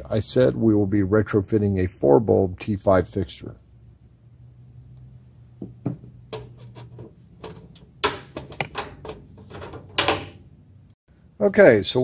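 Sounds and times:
fluorescent tubes clicking and scraping: 6.3 - 10.0.

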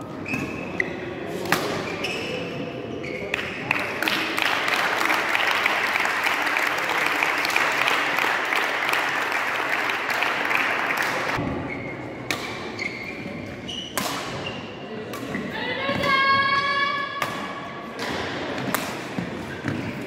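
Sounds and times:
spectators applauding: 3.7 - 11.4.

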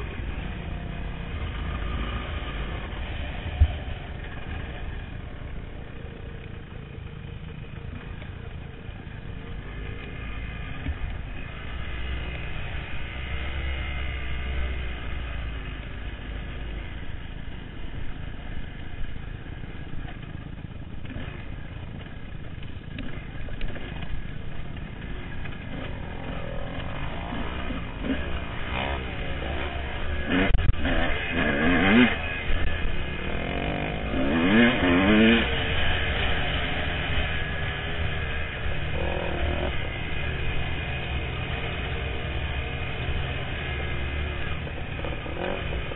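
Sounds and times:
dirt bike engine revving: 0.0 - 6.3, 21.0 - 45.9.

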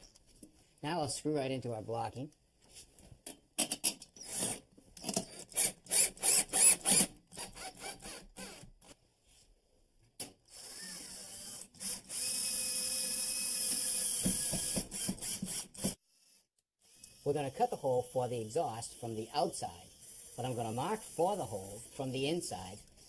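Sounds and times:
drill motor running: 5.5 - 8.6, 10.5 - 16.0, 19.9 - 21.9.

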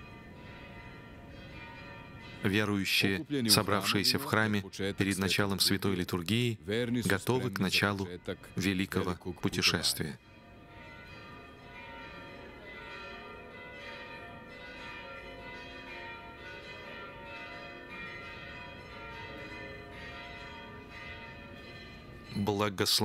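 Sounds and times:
church bells ringing: 0.0 - 23.0.

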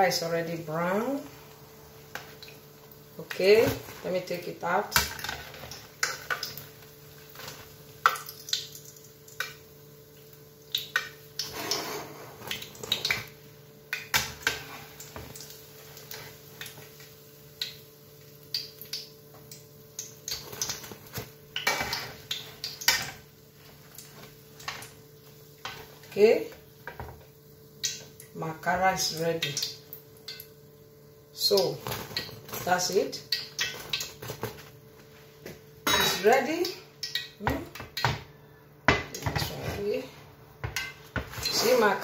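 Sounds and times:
faint steady hum: 0.0 - 42.0
cutlery scraping a frying pan: 11.4 - 13.2, 20.5 - 23.2, 39.1 - 40.0, 40.7 - 42.0.

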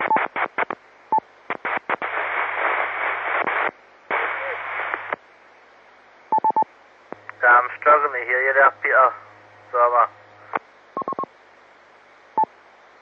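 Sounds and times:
radio beep: 0.0 - 0.5, 11.0 - 11.3
radio carrier hiss: 0.0 - 11.4
low steady hum: 0.0 - 13.0.

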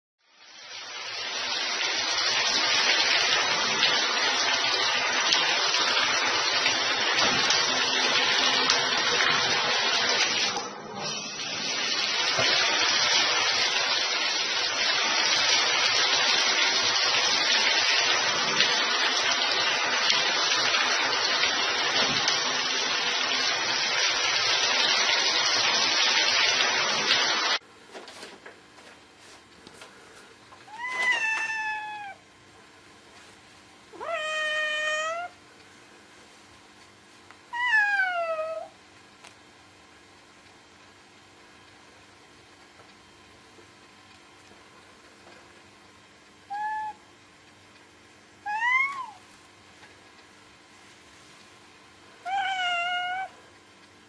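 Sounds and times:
shower spraying water into bathtub: 0.2 - 28.4, 30.6 - 32.2, 32.9 - 38.8, 48.4 - 51.6, 52.2 - 53.3
cat meowing: 30.7 - 32.2, 33.9 - 35.4, 37.5 - 38.8, 46.5 - 47.0, 48.4 - 49.2, 52.2 - 53.4.

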